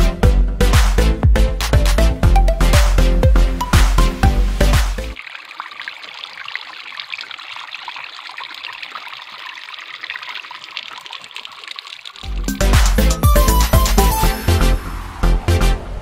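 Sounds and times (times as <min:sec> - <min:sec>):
music: 0:00.0 - 0:05.2, 0:12.3 - 0:16.0
water trickling over stones: 0:05.0 - 0:13.5.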